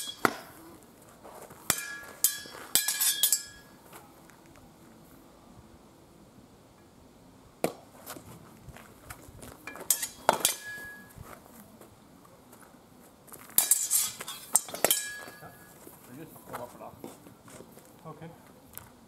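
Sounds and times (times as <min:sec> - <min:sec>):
metallic ring: 0:00.0 - 0:00.5, 0:01.7 - 0:03.8, 0:09.7 - 0:11.2, 0:13.6 - 0:15.8
steel swords clashing: 0:00.0 - 0:00.5, 0:01.7 - 0:03.8, 0:09.7 - 0:11.1, 0:13.6 - 0:15.7.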